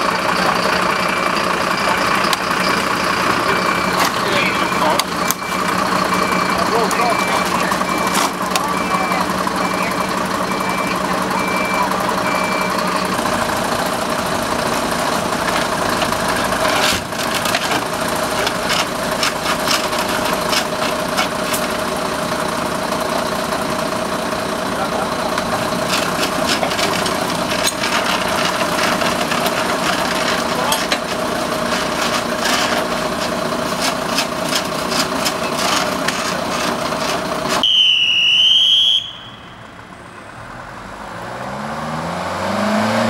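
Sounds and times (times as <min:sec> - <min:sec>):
truck engine running: 0:00.0 - 0:43.0
reversing alarm beeping: 0:00.3 - 0:13.2, 0:37.6 - 0:39.8.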